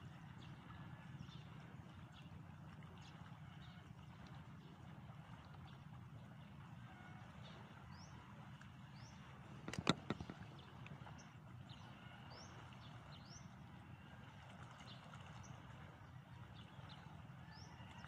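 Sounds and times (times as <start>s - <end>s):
sharp clicks: 9.6s - 10.4s.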